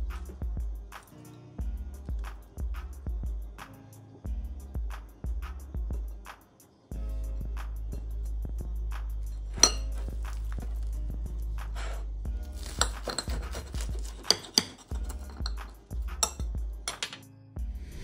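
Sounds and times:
background music with bass beat: 0.0s - 14.1s, 17.6s - 18.0s
knife clinking on plate: 9.5s - 10.6s, 12.6s - 17.2s
knife cutting toasted sandwich: 9.5s - 10.9s, 11.6s - 15.7s.

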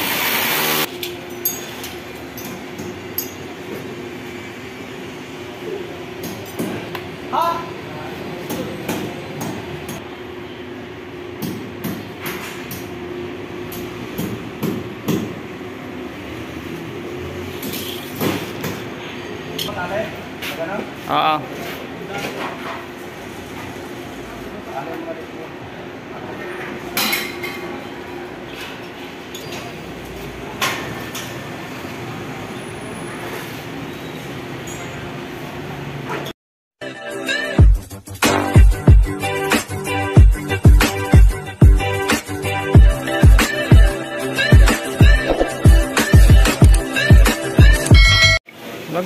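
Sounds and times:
construction site background noise: 0.0s - 36.4s.

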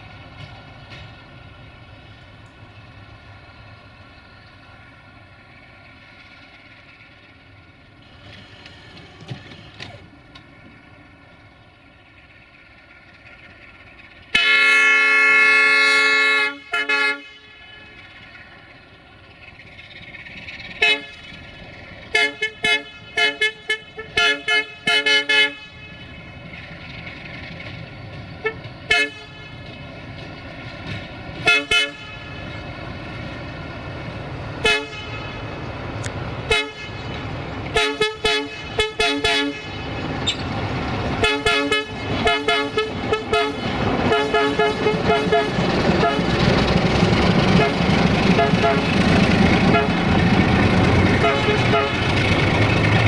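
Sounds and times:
diesel engine: 0.0s - 53.0s
locomotive horn blasts: 14.3s - 17.9s, 20.8s - 21.3s, 22.1s - 26.0s, 28.4s - 29.6s, 31.4s - 32.4s, 34.6s - 35.4s, 36.5s - 37.1s, 37.7s - 40.4s, 41.2s - 46.3s, 47.5s - 49.0s, 49.6s - 50.2s, 51.1s - 52.2s.

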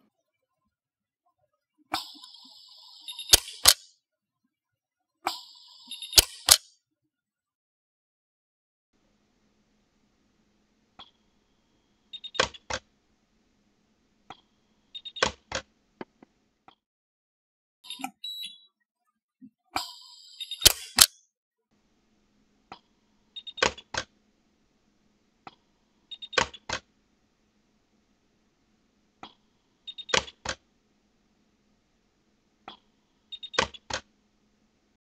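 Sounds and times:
welder sharp snaps: 3.3s - 3.8s, 6.2s - 6.7s, 20.6s - 21.2s.

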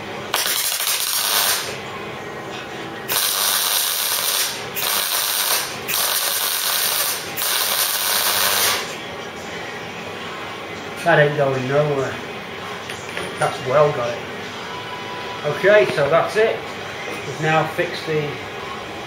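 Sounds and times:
welder arc crackling: 0.3s - 1.8s, 3.1s - 9.0s.

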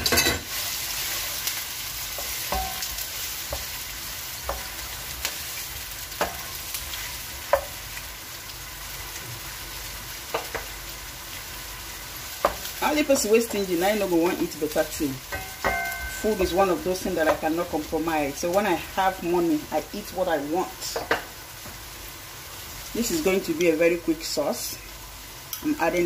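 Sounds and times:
onions sizzling in oil: 0.0s - 26.0s
wooden spoon knocking on pan: 15.3s - 17.5s, 20.9s - 21.8s.

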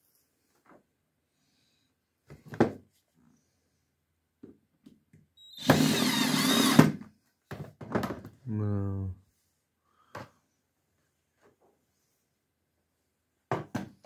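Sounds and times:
cordless drill boring into board: 5.5s - 7.0s.

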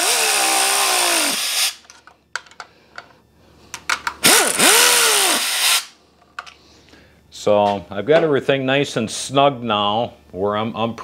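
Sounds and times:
air impact wrench: 0.0s - 1.9s, 4.2s - 6.0s.

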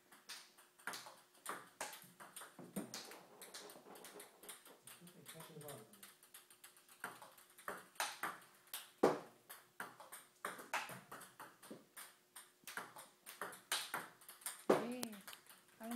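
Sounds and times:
table tennis ball hitting paddles: 0.1s - 15.1s
ball bouncing on table: 9.0s - 15.2s.

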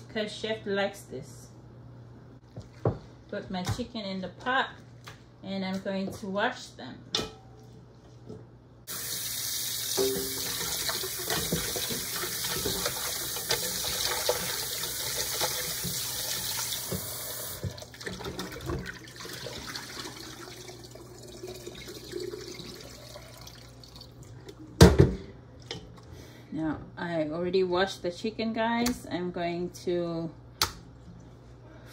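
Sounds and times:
tap running into a pot: 10.0s - 14.6s.

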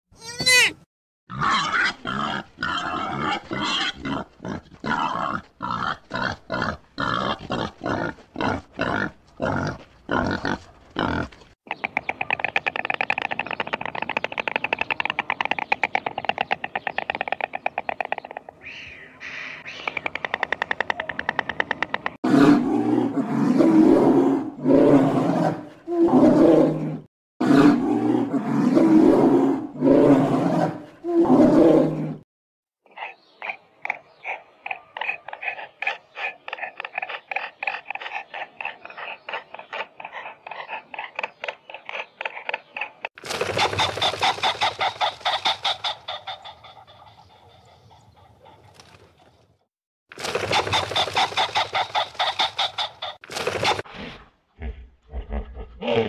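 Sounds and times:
animal short cries: 0.2s - 0.8s
animal loud drawn-out cries: 0.2s - 4.3s
animal rapid rattling call: 43.2s - 46.5s, 50.2s - 53.8s.

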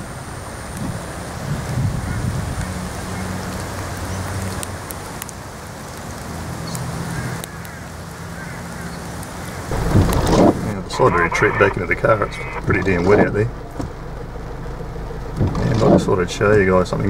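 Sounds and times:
heavy rain falling: 0.0s - 17.0s
steady low hum: 9.7s - 17.0s.

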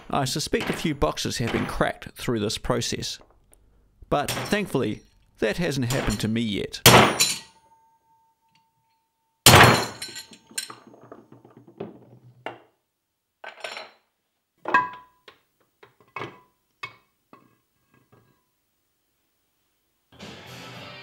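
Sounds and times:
light metallic clinks and knocks: 8.4s - 11.5s.

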